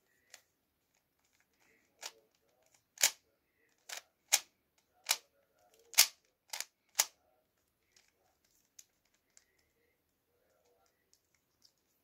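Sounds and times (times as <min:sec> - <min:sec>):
plastic puzzle cube clacking: 0:00.3 - 0:07.2.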